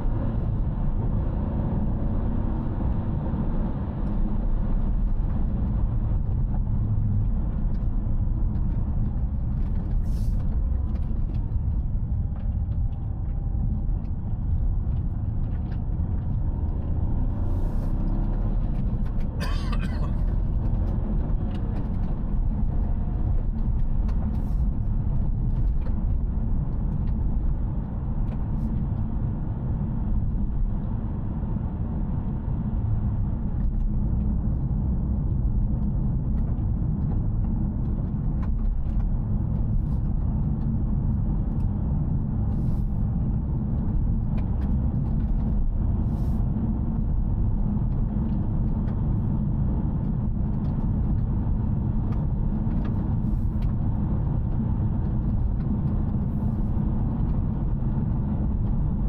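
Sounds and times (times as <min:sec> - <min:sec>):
in-cabin car rumble: 0:00.0 - 0:59.0.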